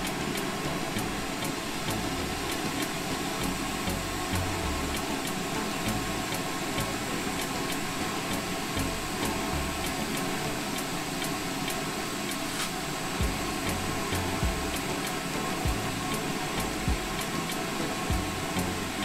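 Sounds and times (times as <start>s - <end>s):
faint regular ticking: 0.0s - 19.0s
torch flame hissing: 0.0s - 19.0s
low rumble: 13.2s - 15.0s.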